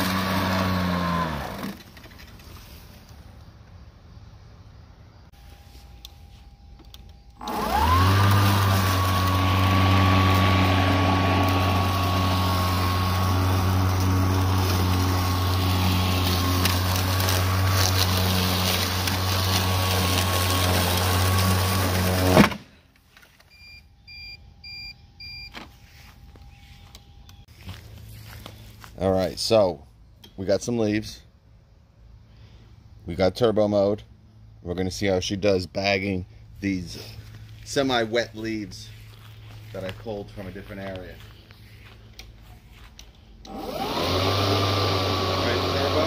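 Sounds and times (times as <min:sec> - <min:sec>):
electric lawn mower whine: 0:00.0 - 0:03.4, 0:05.3 - 0:24.0, 0:24.8 - 0:29.0, 0:38.7 - 0:46.0.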